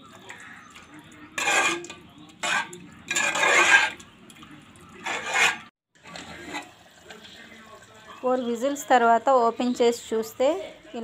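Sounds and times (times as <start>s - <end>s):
metal spoon scraping a pot: 0.2s - 4.1s, 4.8s - 7.0s.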